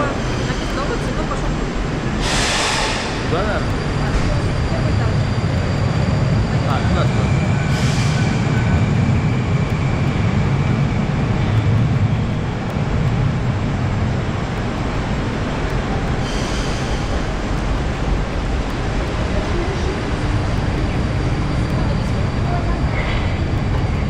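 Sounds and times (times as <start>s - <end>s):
metro train rumbling: 0.0s - 24.0s
short hisses: 2.2s - 3.3s.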